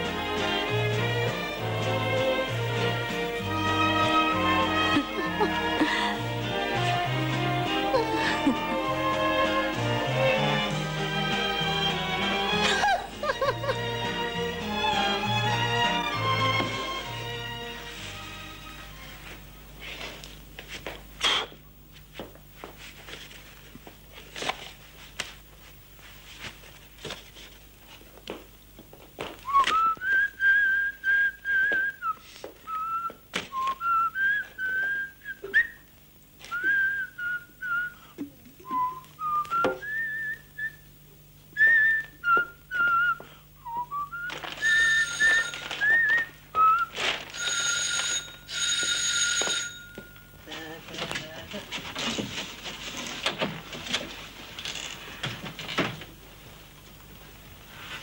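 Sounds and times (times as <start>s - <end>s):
rustling of cloth and objects: 18.8s - 35.1s, 41.6s - 48.2s, 49.6s - 58.0s
man whistling a tune: 29.5s - 35.8s, 36.4s - 40.9s, 41.5s - 47.0s.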